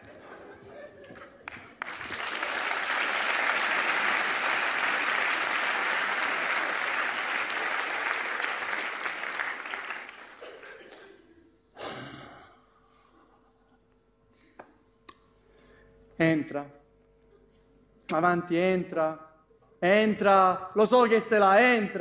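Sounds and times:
audience applauding: 1.1 - 11.2.

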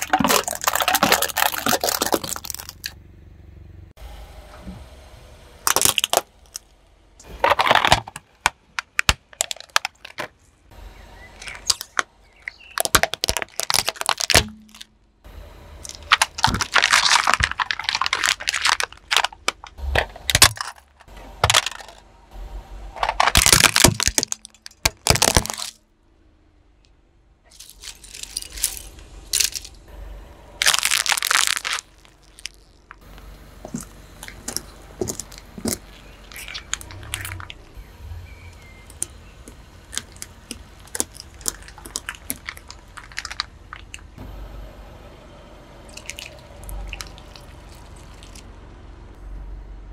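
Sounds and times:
car tyre crushing plastic toys: 0.0 - 3.0, 5.6 - 15.1, 15.8 - 22.0, 23.0 - 25.8, 27.5 - 29.9, 30.5 - 44.2, 45.9 - 48.5
sharp cracks crunches and pops: 0.0 - 3.0, 5.6 - 10.4, 11.4 - 14.9, 15.8 - 22.0, 23.0 - 25.8, 27.5 - 29.8, 30.6 - 37.7, 38.5 - 44.2.

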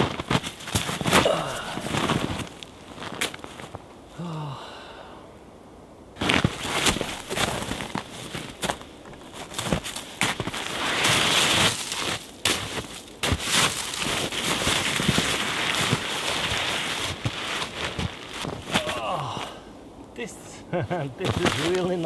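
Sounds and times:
footsteps crunching in snow: 0.0 - 3.9, 6.2 - 19.4, 21.2 - 22.0
fabric bag rustling: 13.3 - 18.7.

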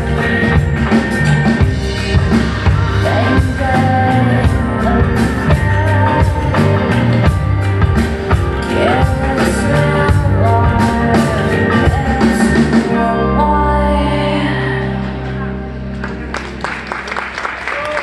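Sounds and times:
drum kit: 0.0 - 13.1
sustained band chords: 0.0 - 17.6
woman singing: 2.8 - 7.5, 8.6 - 15.5.

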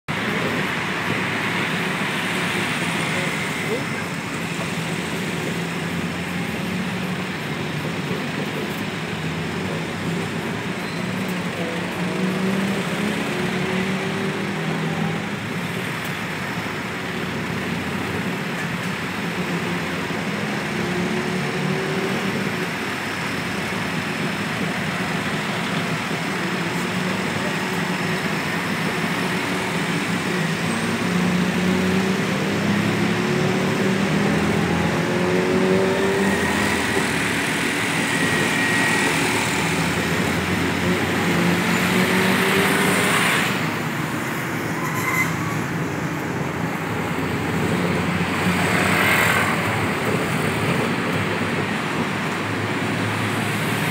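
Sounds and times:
traffic: 0.0 - 53.9
truck engine accelerating: 0.1 - 53.9.

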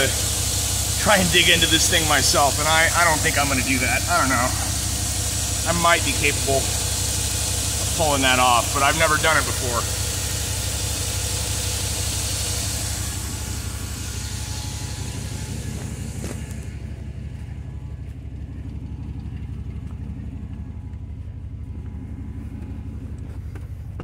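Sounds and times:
hiss: 0.0 - 16.6
engine idling low rumble: 0.0 - 24.0.

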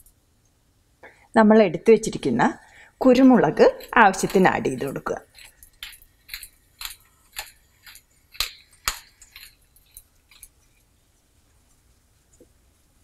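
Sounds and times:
pepper mill grinding: 3.0 - 10.8.

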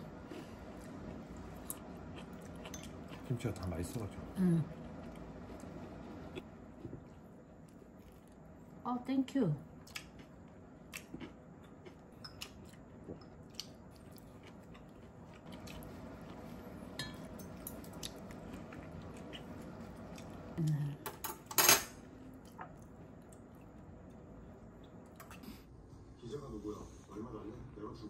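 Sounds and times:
tableware clattering: 21.1 - 22.0.

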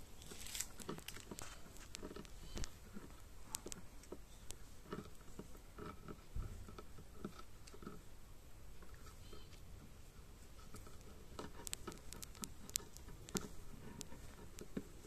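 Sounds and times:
puppy gnawing on wood: 0.1 - 8.1, 8.8 - 15.0.

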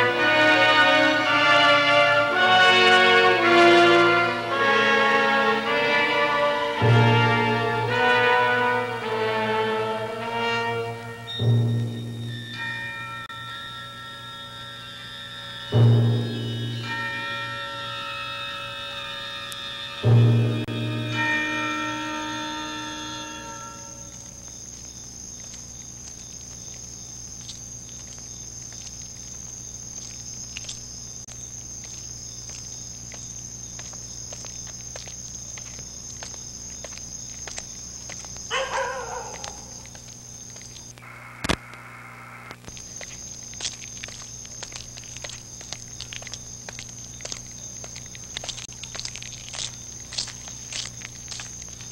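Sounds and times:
crickets chirping: 0.0 - 51.9
wavering animal call: 38.5 - 40.0.

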